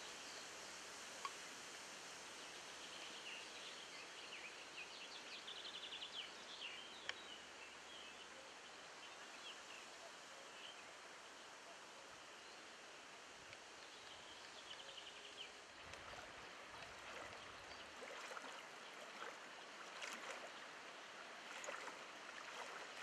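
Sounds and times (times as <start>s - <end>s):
steady hiss: 0.0s - 17.8s
birds chirping: 13.8s - 23.0s.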